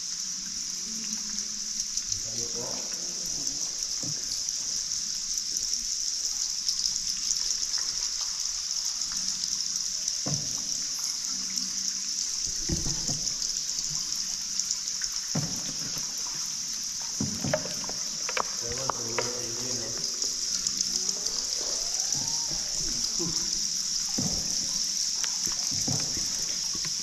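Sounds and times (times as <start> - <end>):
insects chirring: 0.0 - 27.0
water dripping and trickling: 0.0 - 27.0.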